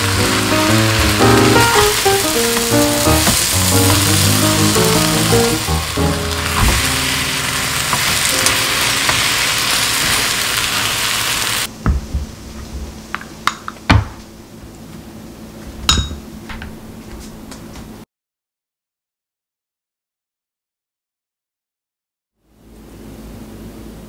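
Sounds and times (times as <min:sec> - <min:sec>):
pancake sizzling in a frying pan: 0:00.0 - 0:11.7.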